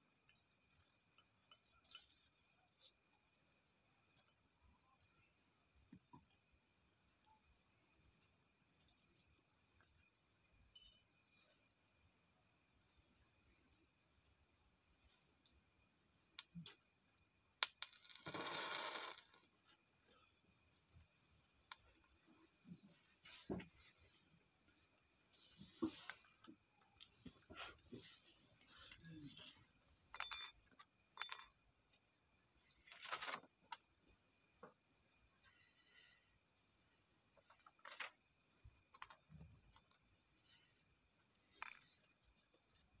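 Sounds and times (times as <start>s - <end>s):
crickets chirping: 0.0s - 43.0s.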